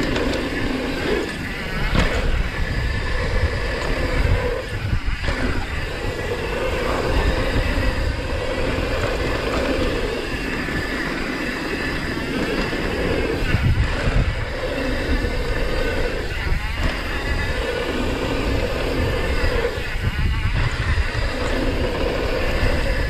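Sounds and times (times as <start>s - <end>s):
bike chatter and knocks: 0.0s - 2.6s
bike tyres rumbling on dirt: 0.0s - 23.0s
wind buffeting microphone: 0.0s - 23.0s.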